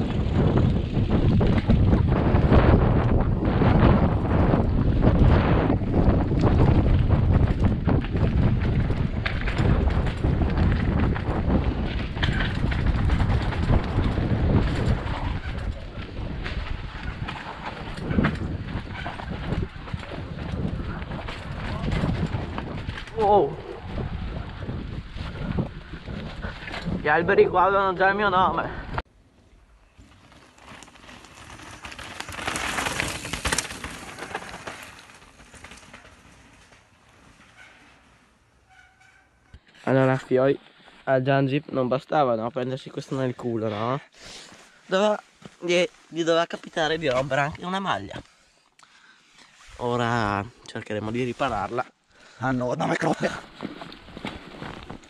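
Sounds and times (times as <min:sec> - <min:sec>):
bike knocking and rattling: 0:00.0 - 0:28.3, 0:29.8 - 0:39.7, 0:53.0 - 0:55.0
wind buffeting microphone: 0:00.0 - 0:29.0.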